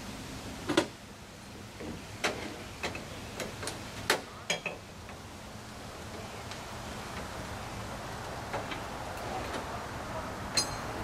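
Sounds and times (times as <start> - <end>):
metal tools clinking on metal deck: 10.5 - 11.0.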